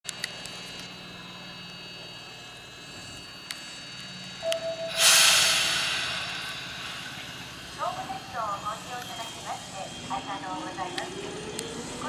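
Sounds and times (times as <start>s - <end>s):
electric train humming: 0.1s - 12.0s
short beep: 4.4s - 7.0s
compressed air hissing: 4.9s - 7.8s.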